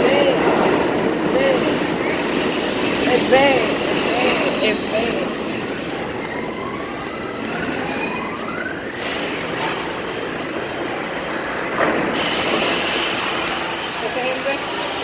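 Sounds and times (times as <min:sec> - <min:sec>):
subway train whine: 0:00.0 - 0:15.0
train hiss: 0:01.5 - 0:05.5, 0:09.0 - 0:09.9, 0:12.0 - 0:15.0.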